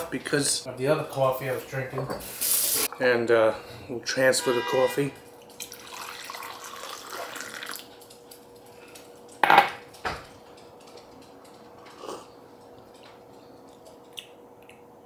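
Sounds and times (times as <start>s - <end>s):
coffee pouring into mug: 5.6s - 8.0s.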